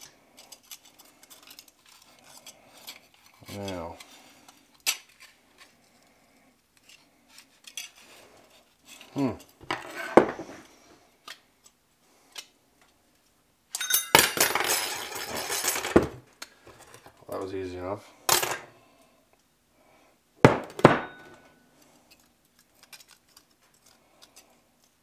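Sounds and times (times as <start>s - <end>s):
sharp metal clanks: 20.5s - 21.5s.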